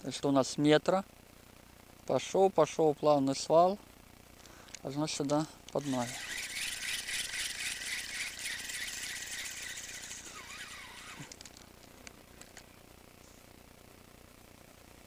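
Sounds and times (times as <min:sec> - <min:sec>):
reel clicks: 0:05.7 - 0:12.7
fishing reel whirring: 0:05.8 - 0:11.6.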